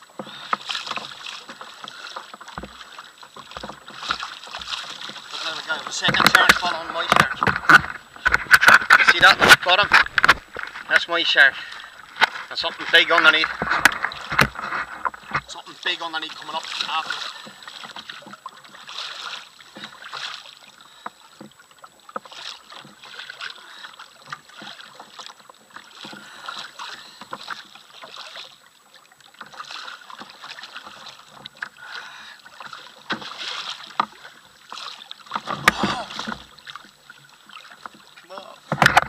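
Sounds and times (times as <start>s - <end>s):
water splashing against kayak hull: 0.0s - 39.0s
small knocks and clicks: 5.8s - 11.1s, 12.1s - 15.5s, 38.7s - 39.0s.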